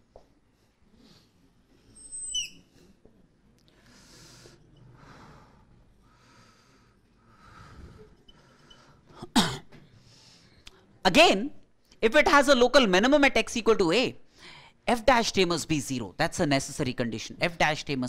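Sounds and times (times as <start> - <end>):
marker squeaking on whiteboard: 2.0 - 2.8.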